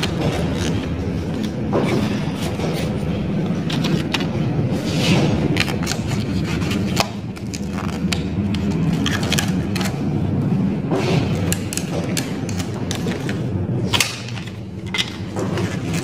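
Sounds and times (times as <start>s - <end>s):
insulation paper rustling: 0.0s - 10.3s
steady low hum: 0.0s - 16.0s.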